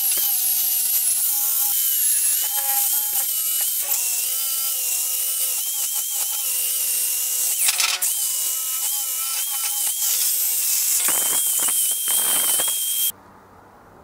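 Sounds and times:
electric drill motor whine: 0.0s - 13.1s
wire brush scratching metal: 0.9s - 4.7s, 8.8s - 13.1s.

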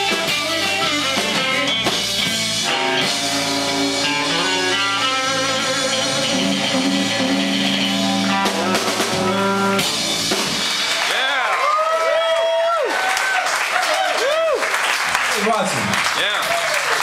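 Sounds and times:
blues-rock band playing: 0.0s - 11.6s.

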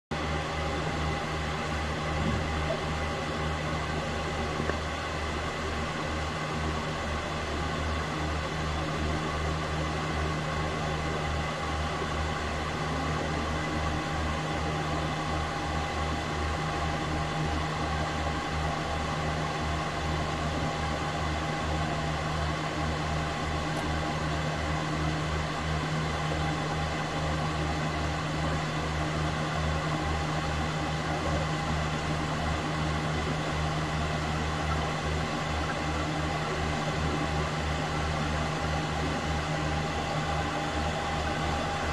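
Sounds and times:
aquarium equipment hum and hiss: 0.1s - 41.9s.

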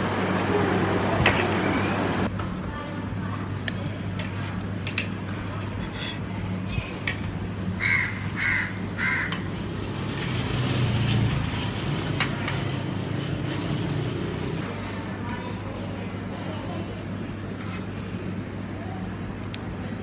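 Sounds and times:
crow cawing: 7.8s - 9.4s.

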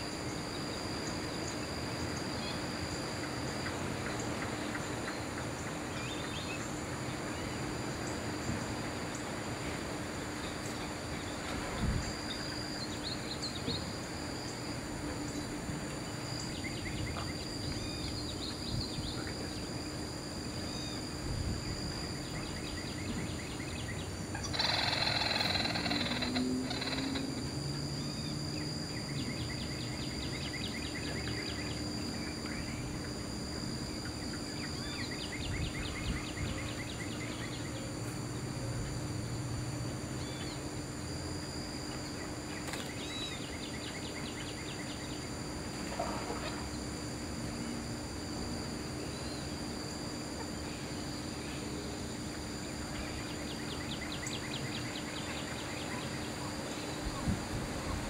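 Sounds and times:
insects droning: 0.0s - 58.0s
birds trilling: 22.2s - 27.5s.

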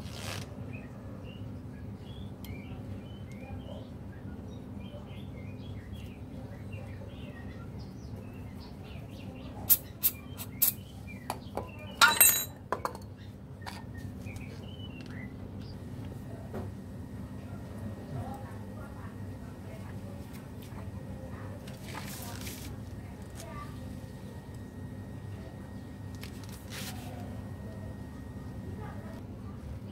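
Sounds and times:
steady low hum: 0.6s - 29.9s
small birds chirping: 0.7s - 12.1s, 13.0s - 15.8s
metal tools clinking: 12.0s - 13.0s.

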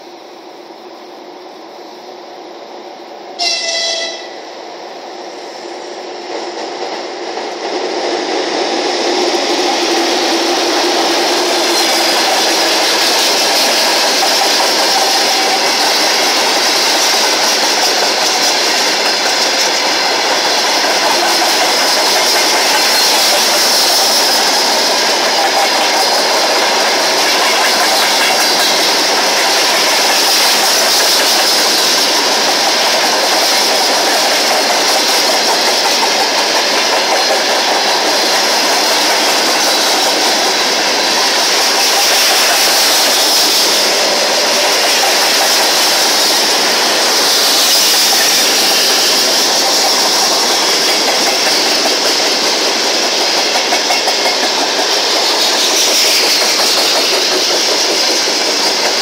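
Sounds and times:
freight train rumbling past: 0.0s - 59.0s
short pitched tone: 3.4s - 4.5s.

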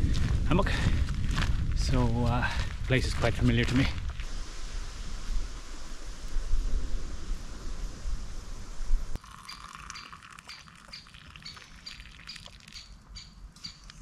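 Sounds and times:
low rumbling: 0.0s - 9.2s
tea pouring into cup: 9.2s - 12.8s
woodpecker calling high bips: 9.3s - 14.0s.

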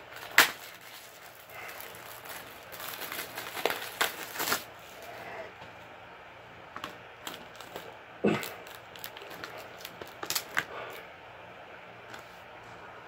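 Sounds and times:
plastic wrapping tearing: 0.0s - 4.7s, 7.2s - 11.0s
wrapping crinkling: 0.0s - 5.2s, 6.8s - 11.0s.

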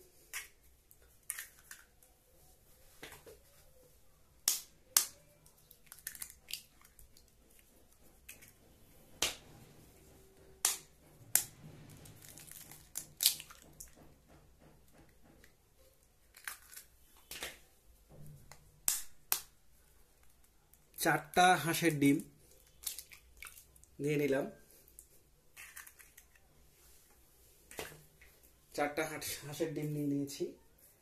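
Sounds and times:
eggshells cracking: 5.7s - 7.3s, 12.2s - 14.0s, 16.2s - 17.6s, 22.6s - 23.9s.

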